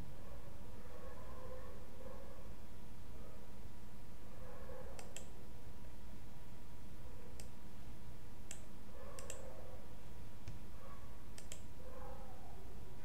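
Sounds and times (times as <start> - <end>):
background hiss and hum: 0.0 - 13.0
computer mouse clicking: 5.0 - 5.4, 7.3 - 7.6, 8.4 - 9.5, 11.3 - 11.7.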